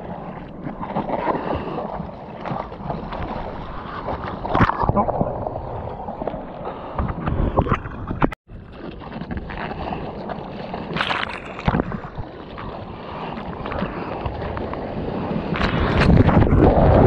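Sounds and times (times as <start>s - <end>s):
sea water splashing: 0.0s - 17.0s
wind buffeting microphone: 11.6s - 17.0s.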